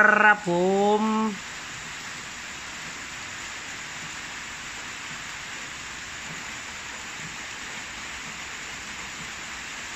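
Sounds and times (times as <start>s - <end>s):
rain falling steadily: 0.0s - 9.9s.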